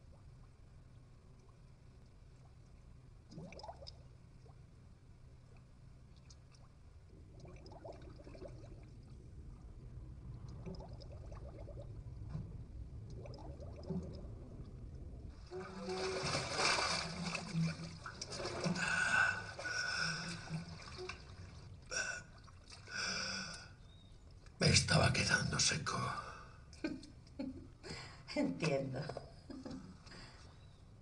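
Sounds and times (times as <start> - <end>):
water sloshing and splashing: 5.4 - 23.5
muffled underwater rumble: 6.9 - 21.9.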